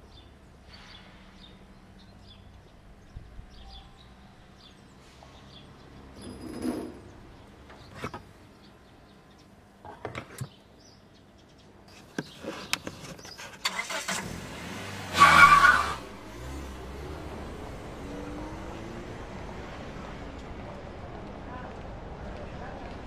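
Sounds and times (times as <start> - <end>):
van engine starting and revving: 13.6 - 20.1.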